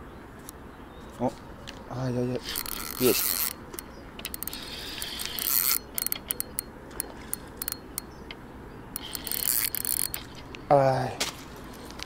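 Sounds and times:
fishing reel whirring: 2.4s - 8.1s, 8.9s - 10.4s
reel clicking ticks: 2.4s - 10.6s.

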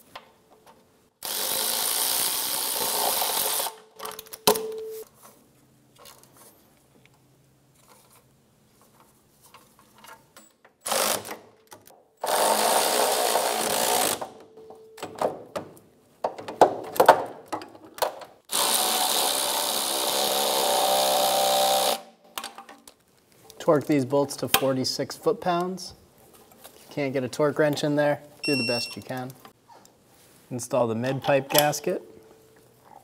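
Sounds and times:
power ratchet spinning nuts: 1.2s - 3.8s, 10.8s - 11.3s, 12.2s - 14.2s, 18.5s - 22.0s.

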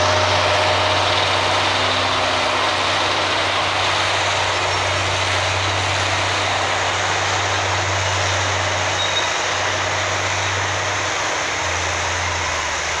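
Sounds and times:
diesel excavator engine running: 0.0s - 13.0s.

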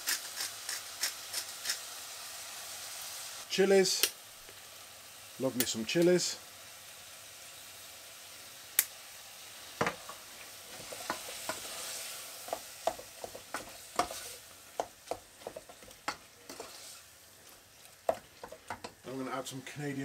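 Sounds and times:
meat sizzling in a pan: 0.0s - 20.0s
spoon knocking on pan: 9.8s - 10.2s, 10.8s - 11.7s, 12.5s - 14.2s, 14.8s - 16.7s, 18.0s - 19.0s
wooden spoon scraping a pan: 9.8s - 19.1s.

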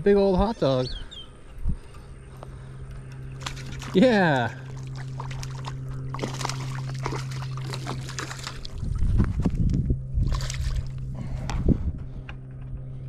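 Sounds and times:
steady low hum: 0.0s - 13.0s
fish thrashing and water splashing: 3.2s - 9.6s, 10.2s - 11.1s
heavy low thumps: 8.6s - 13.0s.

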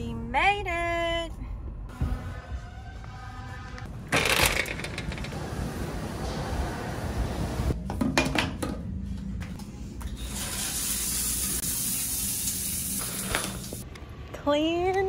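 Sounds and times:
shower water hissing onto tile: 10.2s - 13.8s.

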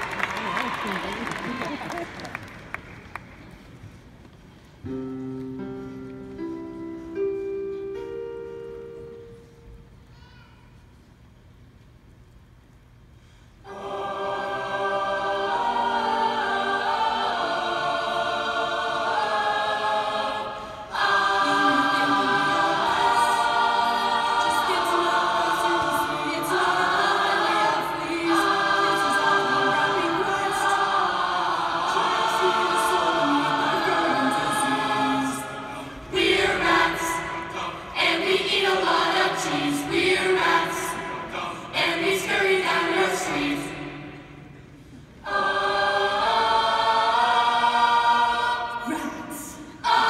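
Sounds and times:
mixed choir singing in harmony: 13.6s - 50.0s.

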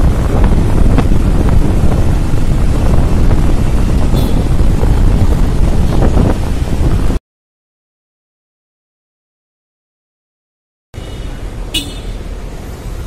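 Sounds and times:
motorcycle engine: 0.0s - 6.8s
wind buffeting microphone: 0.0s - 7.2s.

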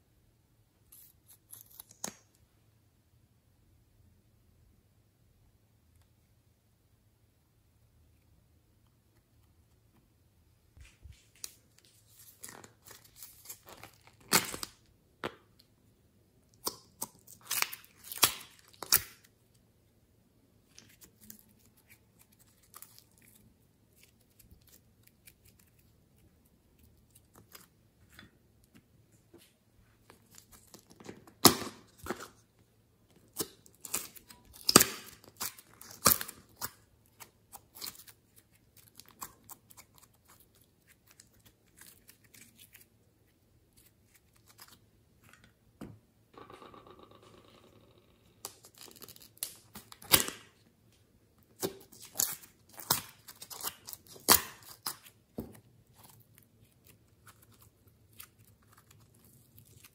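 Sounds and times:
slime crackling and snapping: 33.4s - 38.2s.

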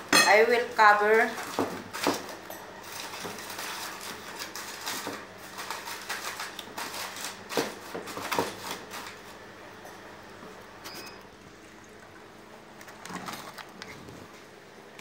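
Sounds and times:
aluminium foil crinkling: 0.6s - 9.4s.

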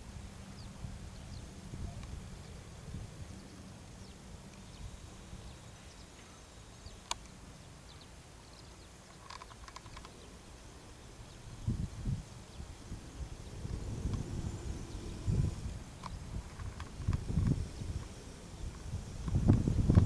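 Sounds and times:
wind rumble on microphone: 0.0s - 5.6s, 11.1s - 20.0s.

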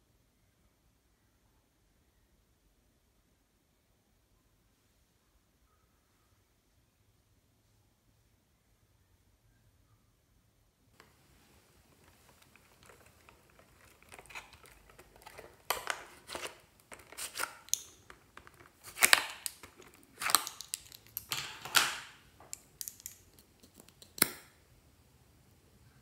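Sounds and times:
plastic packaging crinkling: 11.8s - 24.2s
plastic tubes clicking together: 12.0s - 24.4s.

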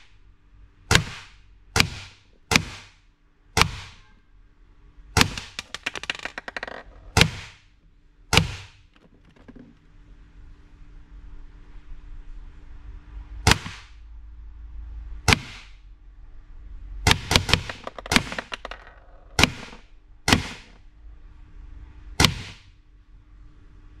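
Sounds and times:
airsoft gun shots: 0.9s - 3.0s, 3.6s - 4.0s, 8.3s - 8.8s, 13.5s - 14.0s, 15.3s - 15.7s, 19.4s - 20.8s, 22.2s - 22.7s.

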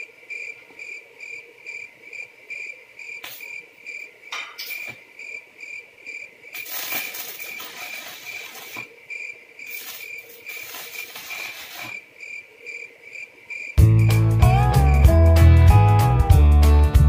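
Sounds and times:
crickets chirping: 0.0s - 15.6s
welding arc crackling: 3.2s - 3.6s, 4.3s - 5.0s, 6.5s - 9.0s, 9.6s - 12.0s.

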